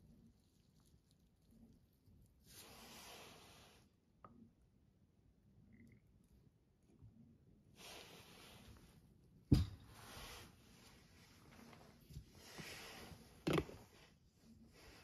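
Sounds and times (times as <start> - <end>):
faint steady hiss: 0.0 - 4.7.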